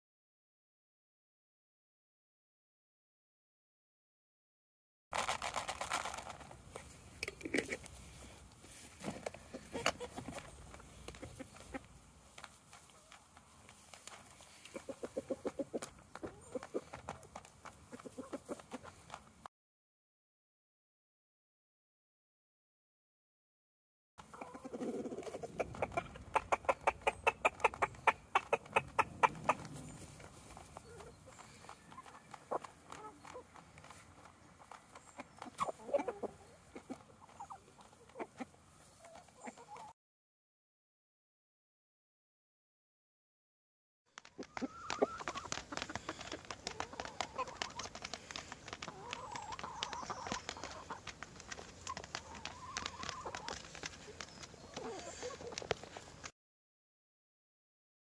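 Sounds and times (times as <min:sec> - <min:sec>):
hens pecking: 0:05.1 - 0:19.5, 0:24.2 - 0:39.9, 0:44.2 - 0:56.3
hens clucking: 0:05.2 - 0:19.4, 0:24.2 - 0:39.9, 0:44.2 - 0:56.3.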